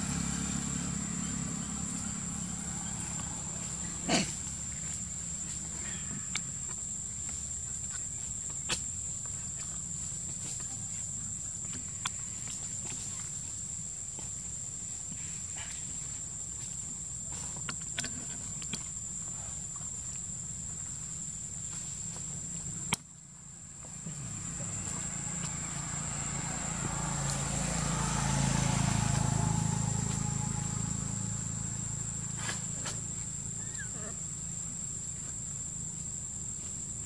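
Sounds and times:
vehicle passing: 0:00.0 - 0:05.7, 0:23.9 - 0:33.7
insect drone: 0:00.0 - 0:37.0.

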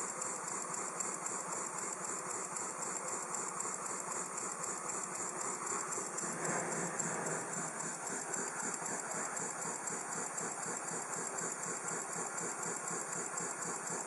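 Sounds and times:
model mill engine running: 0:00.0 - 0:14.0.

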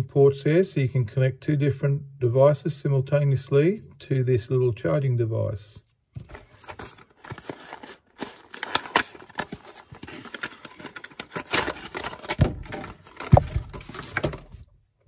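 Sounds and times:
plastic crinkling: 0:06.2 - 0:14.6
cardboard box scraping and rustling: 0:06.3 - 0:14.5
thumps: 0:11.6 - 0:14.7.

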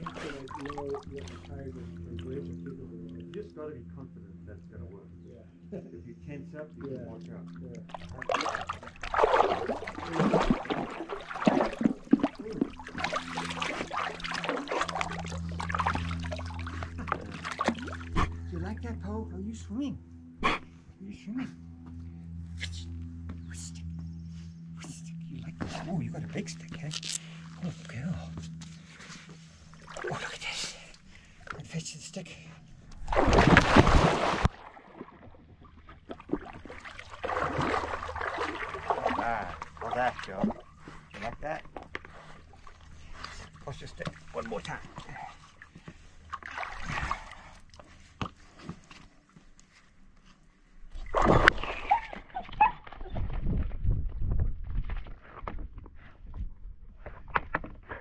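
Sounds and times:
water sloshing and splashing: 0:00.0 - 0:02.4, 0:07.5 - 0:18.4, 0:28.8 - 0:31.6, 0:32.9 - 0:50.3, 0:50.9 - 0:55.0.

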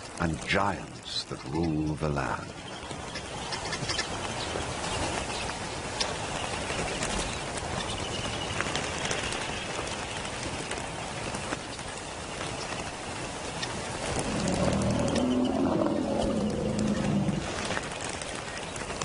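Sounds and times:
many fluttering wings: 0:00.0 - 0:19.0
bird chirps: 0:14.3 - 0:17.6.

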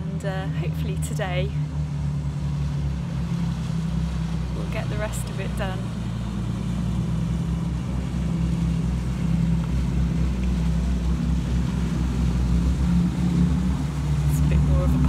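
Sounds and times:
boat engine drone: 0:00.0 - 0:15.0.

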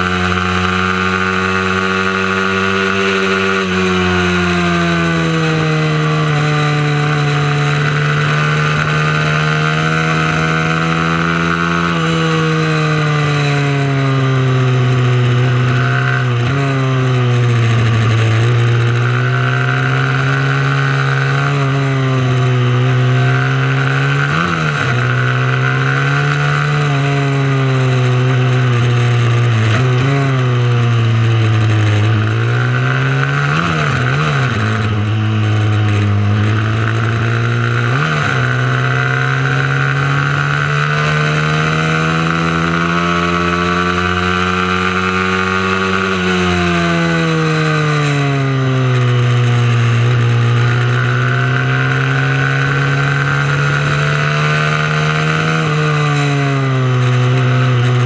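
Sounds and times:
mini motorcycle engine revving: 0:00.0 - 0:58.0.

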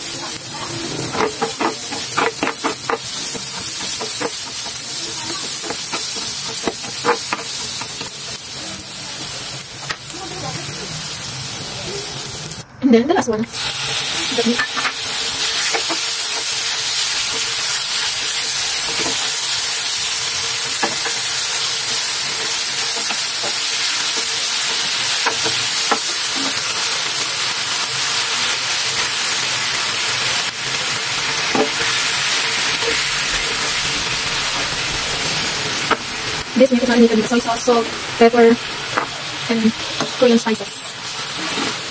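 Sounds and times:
meat sizzling in a grill pan: 0:00.0 - 0:12.6, 0:13.5 - 0:41.9
cooking utensil clicks and scrapes: 0:00.8 - 0:08.4, 0:13.8 - 0:29.8, 0:31.4 - 0:33.8.

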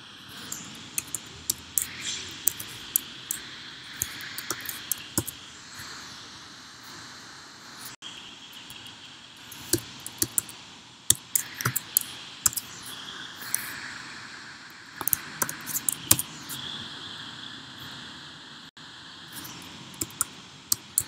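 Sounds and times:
typing on a computer keyboard: 0:00.4 - 0:05.4, 0:09.5 - 0:10.5, 0:11.1 - 0:12.7, 0:15.0 - 0:16.2, 0:20.0 - 0:21.0.

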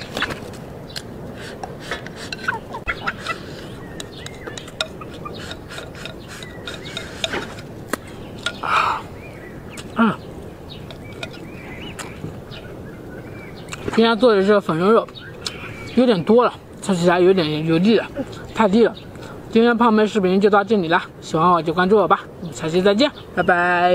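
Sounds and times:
birds chirping: 0:00.0 - 0:23.9.

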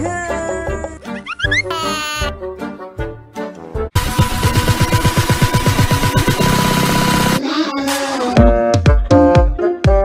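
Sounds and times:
fast electronic beat: 0:04.0 - 0:07.4.

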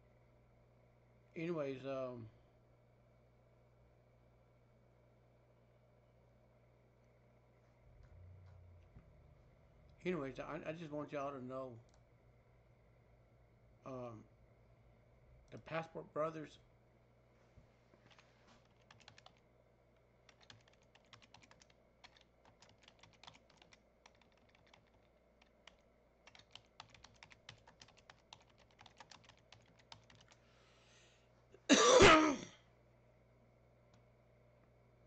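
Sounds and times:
keyboard typing: 0:18.1 - 0:19.4, 0:20.3 - 0:30.4
person coughing: 0:31.6 - 0:32.7.

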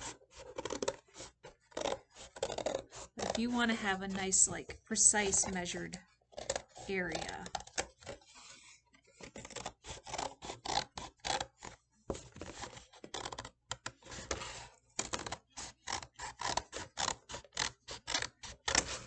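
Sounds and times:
scissors snipping cardboard: 0:00.0 - 0:04.0, 0:09.1 - 0:19.0.

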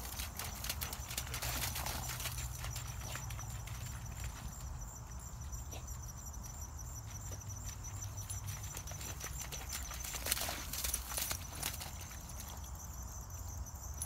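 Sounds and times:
splashing and rustling: 0:00.0 - 0:04.3, 0:08.5 - 0:12.6
dog paws pattering through wet grass: 0:00.0 - 0:06.0, 0:07.0 - 0:12.8.

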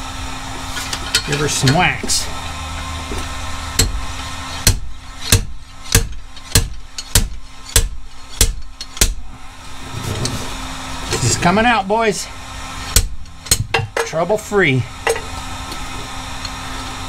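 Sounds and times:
hammer striking metal puller: 0:04.6 - 0:09.2.

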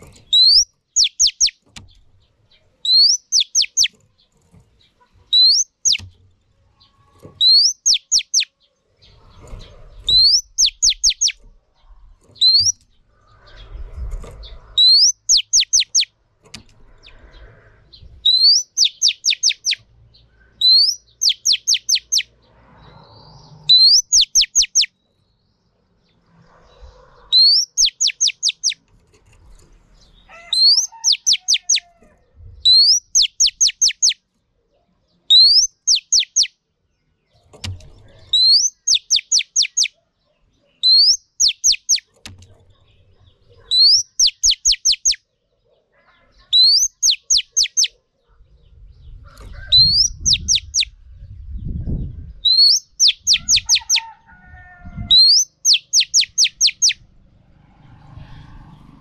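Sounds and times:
bird whistling song: 0:00.3 - 0:01.6, 0:02.8 - 0:04.0, 0:05.3 - 0:06.1, 0:07.4 - 0:08.5, 0:10.0 - 0:11.4, 0:12.4 - 0:12.8, 0:14.8 - 0:16.1, 0:18.2 - 0:19.8, 0:20.4 - 0:22.3, 0:23.4 - 0:25.0, 0:27.3 - 0:28.8, 0:30.6 - 0:31.9, 0:32.6 - 0:34.2, 0:35.3 - 0:36.6, 0:38.3 - 0:40.0, 0:40.8 - 0:42.1, 0:43.7 - 0:45.2, 0:46.5 - 0:48.0, 0:49.7 - 0:51.0, 0:51.6 - 0:54.1, 0:55.1 - 0:57.0.

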